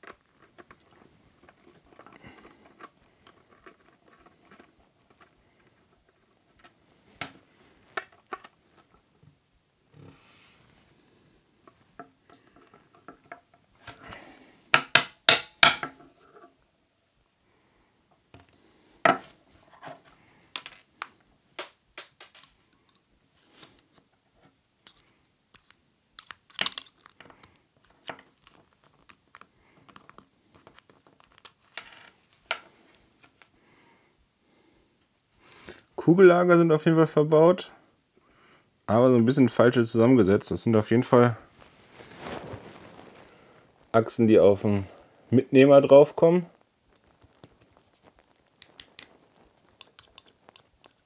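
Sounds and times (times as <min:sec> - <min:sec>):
small plastic parts clicking: 0:24.8 - 0:31.9, 0:47.3 - 0:51.0.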